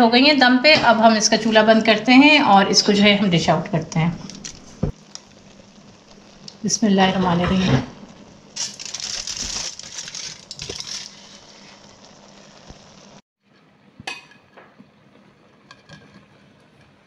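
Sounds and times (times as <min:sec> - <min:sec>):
aluminium foil crinkling: 0:04.2 - 0:05.4, 0:08.5 - 0:12.1.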